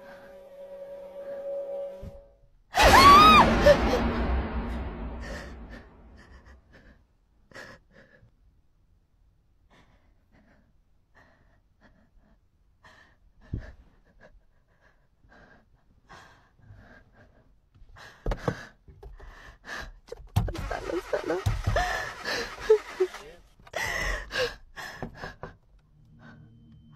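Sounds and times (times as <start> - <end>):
person gasping and breathing hard: 23.7 - 25.6.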